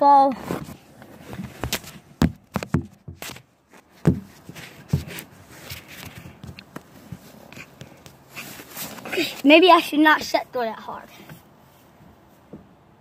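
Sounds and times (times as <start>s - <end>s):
phone knocks and bumps: 1.6s - 3.4s, 4.0s - 5.1s.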